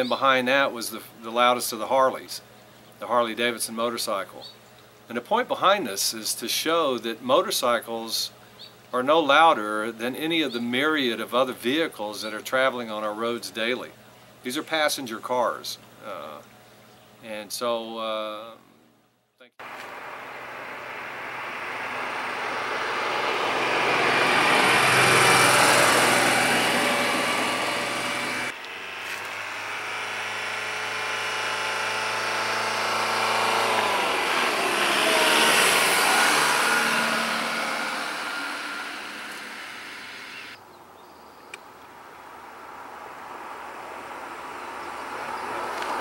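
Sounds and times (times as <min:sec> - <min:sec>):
car approaching: 0:19.6 - 0:40.6, 0:42.2 - 0:46.0
car driving past: 0:19.6 - 0:40.6
diesel car passing: 0:19.6 - 0:40.6, 0:42.6 - 0:46.0.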